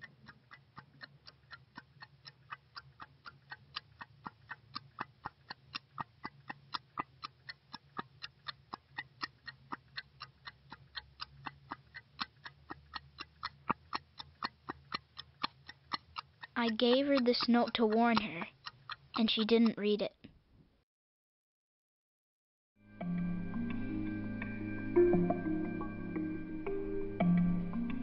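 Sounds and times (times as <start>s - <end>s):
clock ticking: 0.0s - 20.2s.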